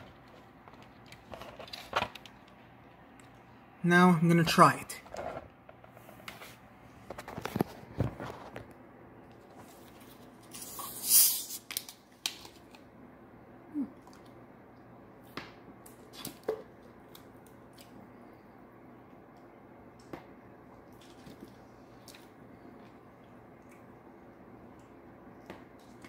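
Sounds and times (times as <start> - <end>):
carbonation hiss: 10.6 - 11.7.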